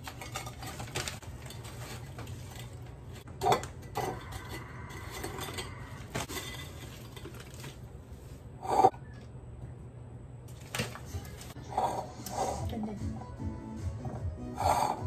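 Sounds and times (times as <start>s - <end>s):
wrapper rustling: 6.0s - 8.4s.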